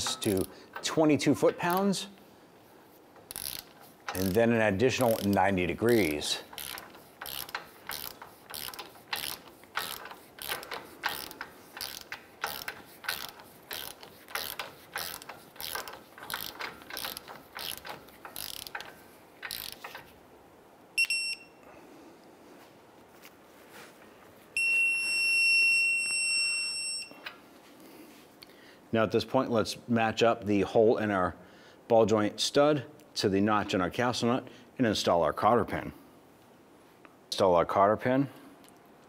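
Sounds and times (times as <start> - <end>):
torque wrench ratcheting: 0.0 - 0.9, 3.2 - 20.2
long steady beep: 21.0 - 21.6, 24.6 - 27.2
short electronic beep: 21.0 - 21.6.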